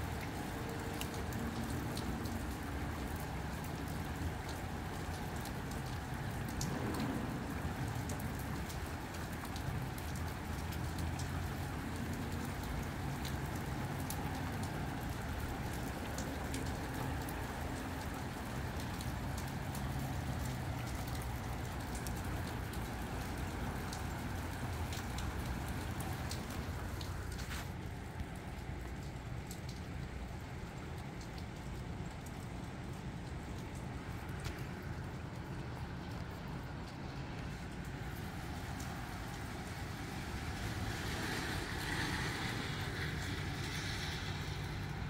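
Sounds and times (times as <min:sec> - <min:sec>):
sharp raindrop ticks: 0:00.0 - 0:45.0
steady rain: 0:00.0 - 0:45.0
gusting wind rumble: 0:06.6 - 0:09.0.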